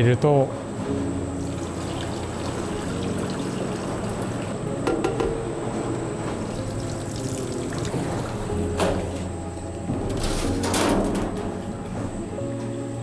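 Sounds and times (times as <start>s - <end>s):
machine hum: 0.0s - 13.0s
liquid splashing and trickling: 1.4s - 4.6s, 6.4s - 9.2s.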